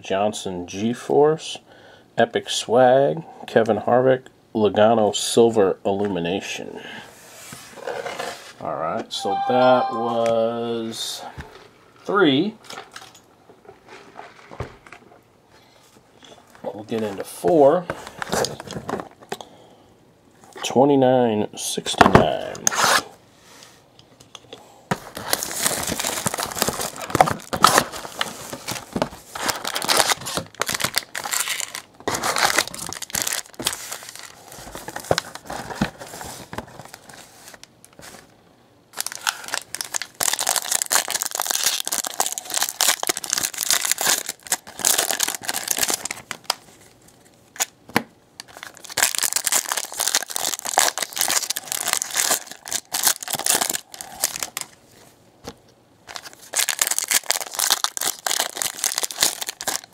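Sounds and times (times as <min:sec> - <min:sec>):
foil wrappers tearing and crinkling: 0:25.1 - 0:37.7, 0:38.9 - 0:46.9, 0:48.4 - 0:54.8, 0:56.1 - 0:59.9.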